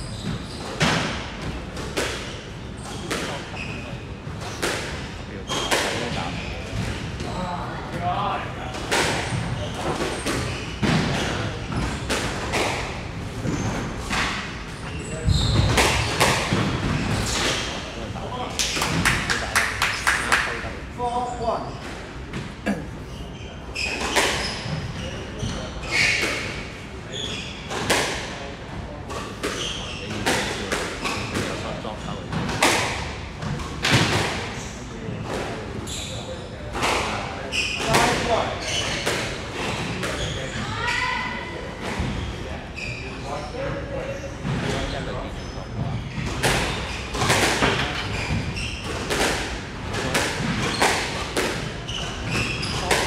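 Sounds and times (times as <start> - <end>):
shoes squeaking on wooden floor: 14.8 - 16.3, 44.4 - 49.1, 51.8 - 53.0.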